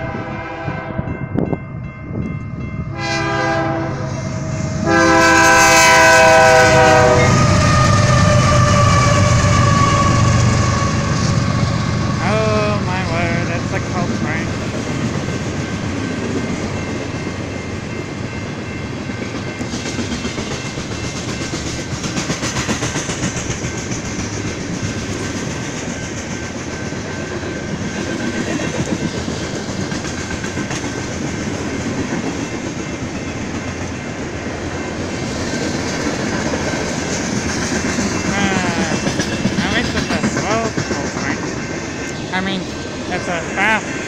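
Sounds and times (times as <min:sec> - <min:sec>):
train wheels rumbling on rails: 0:00.0 - 0:44.0
clickety-clack over rail joints: 0:12.9 - 0:42.3.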